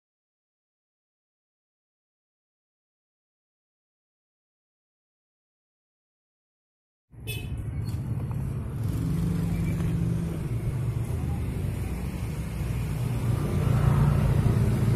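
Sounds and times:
engine low rumble: 7.6 - 14.9.

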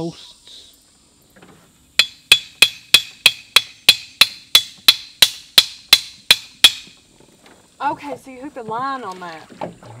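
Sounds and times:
hammer blows on stake: 2.0 - 7.0.

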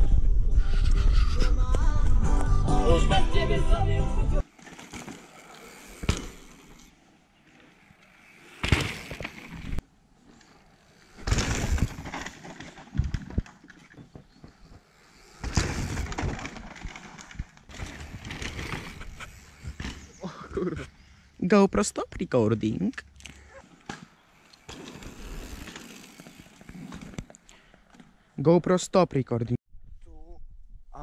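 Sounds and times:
bike tyres on packed dirt: 3.3 - 28.4
bike knocks: 6.0 - 6.8, 8.5 - 9.8, 11.2 - 20.2.

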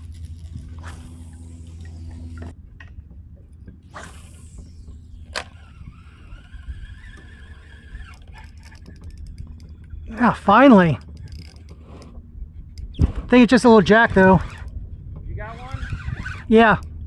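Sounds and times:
water lapping around kayak: 0.0 - 16.6
fishing line reeling whine: 0.0 - 17.0
fishing rod cast swish: 0.3 - 2.5, 3.9 - 5.7
reel click: 4.0 - 10.0, 10.8 - 12.2.

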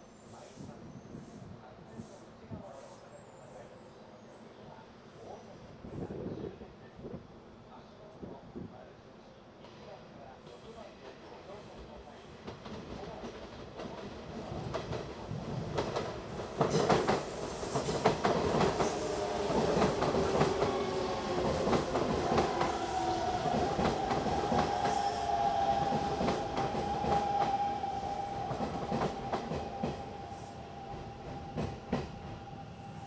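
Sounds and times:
electric train passing: 13.4 - 33.0
train wheels clicking over rail joints: 15.7 - 20.8
train high whine: 16.3 - 33.0.

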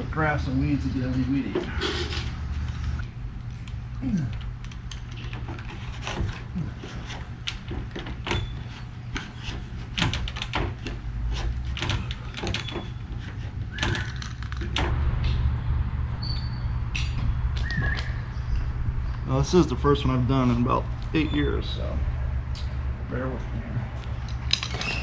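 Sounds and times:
steady low rumble: 14.4 - 24.6.

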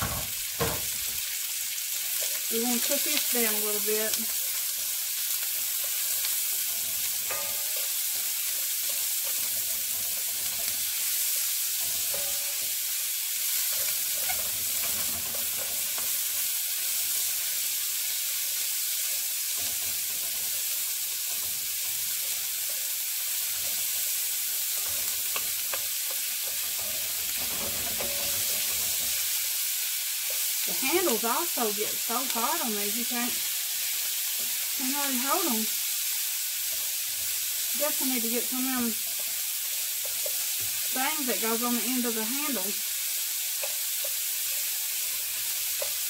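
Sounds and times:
vegetables sizzling in a skillet: 0.0 - 46.0
wooden spoon scraping: 4.3 - 16.5, 21.2 - 29.4.

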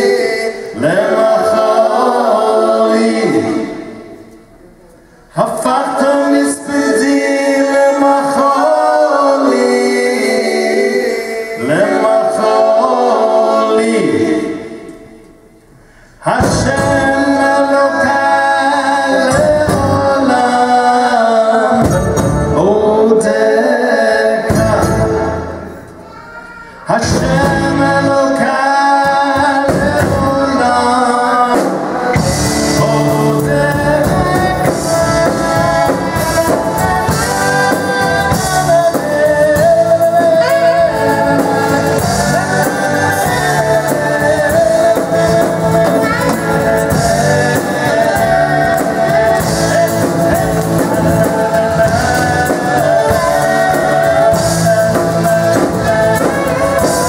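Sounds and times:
man singing: 0.0 - 4.2, 5.3 - 15.0, 16.2 - 25.7, 26.8 - 57.0
drums: 15.0 - 23.5, 24.4 - 26.0, 26.8 - 57.0
keyboard: 26.9 - 57.0
strummed acoustic guitars: 31.6 - 57.0.

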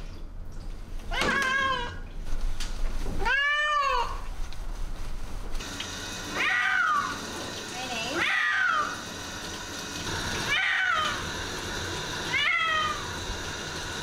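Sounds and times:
cat meowing: 1.1 - 2.0, 3.2 - 4.2, 6.4 - 7.1, 8.2 - 9.0, 10.5 - 11.2, 12.3 - 13.0.

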